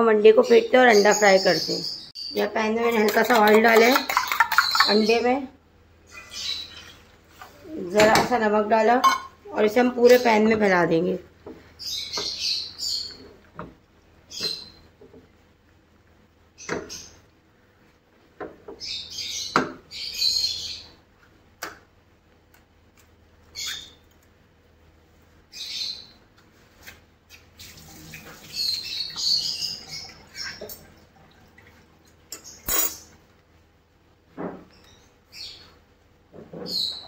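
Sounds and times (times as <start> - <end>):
birds chirping: 0.2 - 13.6, 14.2 - 15.0, 16.5 - 17.4, 18.7 - 21.0, 28.2 - 31.1, 34.6 - 35.8.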